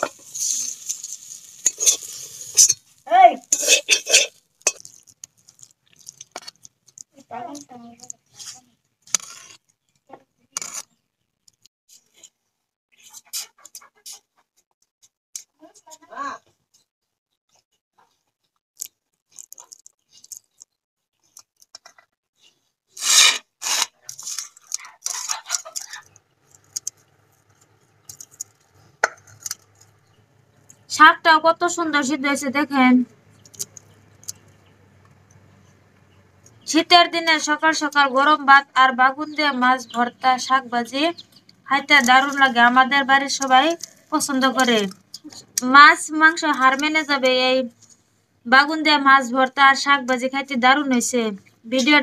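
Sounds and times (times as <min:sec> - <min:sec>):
oil sizzling in pan: 0:00.0 - 0:04.8
spatula scraping metal pan: 0:00.0 - 0:04.9, 0:08.4 - 0:09.6, 0:23.0 - 0:26.0.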